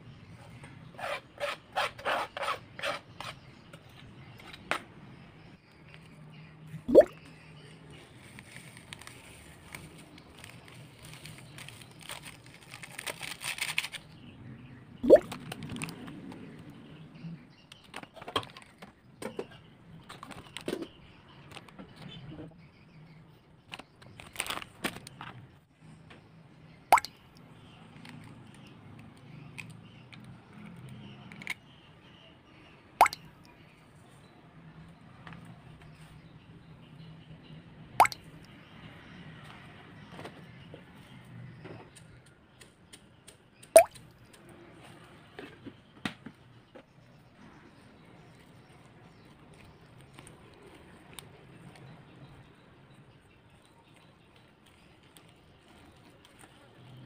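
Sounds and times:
egg plopping into steel bowl: 6.9s - 7.2s, 43.8s - 44.0s
foil sachet crinkling: 8.2s - 14.2s, 24.2s - 25.0s.

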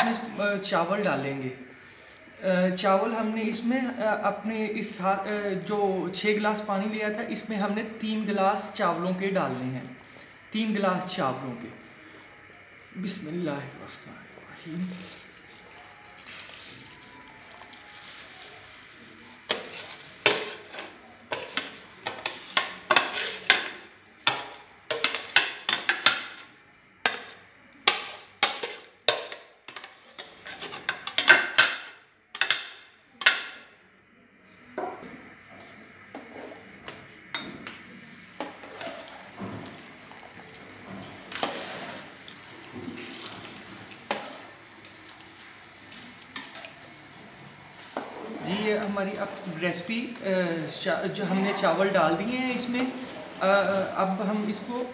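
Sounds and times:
boiling water bubbling: 4.4s - 54.9s
stirring in pot: 14.2s - 33.6s, 34.4s - 49.5s.

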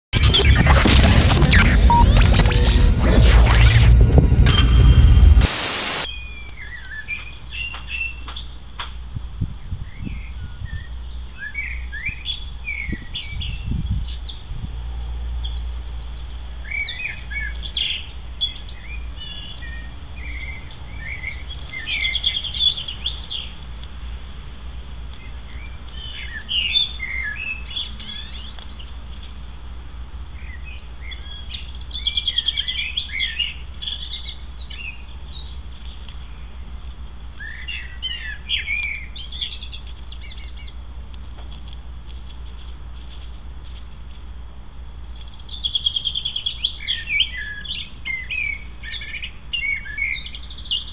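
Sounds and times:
steady low hum: 0.2s - 6.1s.

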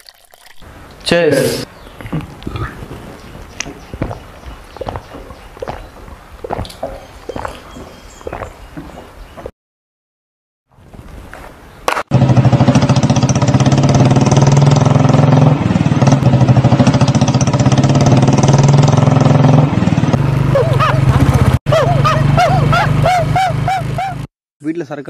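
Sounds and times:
motorcycle engine running: 12.1s - 24.3s.

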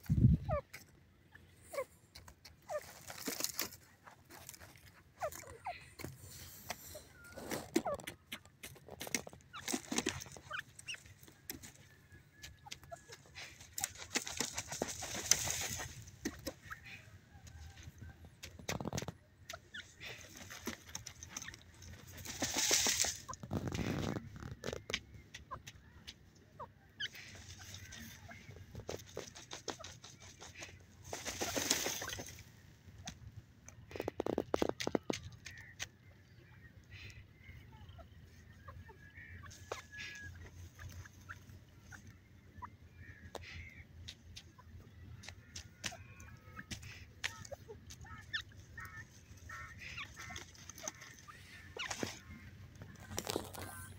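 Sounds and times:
francolin clucking: 0.0s - 53.9s.

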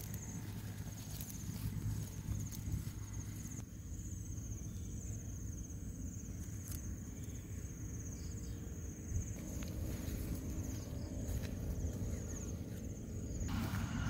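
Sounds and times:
insects trilling: 0.0s - 14.0s
low rumble: 9.0s - 14.0s.

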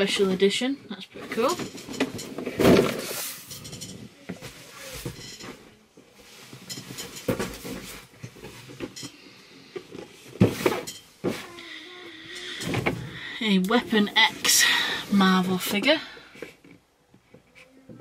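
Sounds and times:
cardboard and plastic packaging rustling: 1.2s - 9.0s.

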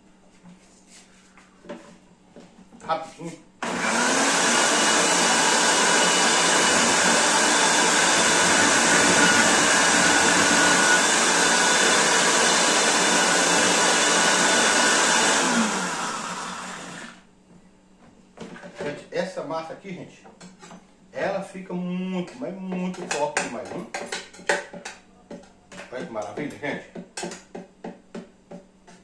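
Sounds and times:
blender running: 3.6s - 17.3s.

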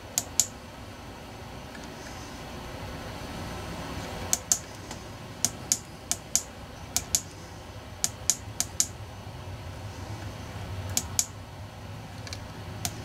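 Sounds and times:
steady low hum: 0.0s - 13.0s
sharp clicks: 0.2s - 0.6s, 4.3s - 7.4s, 8.0s - 9.0s, 10.9s - 11.4s, 12.2s - 13.0s.

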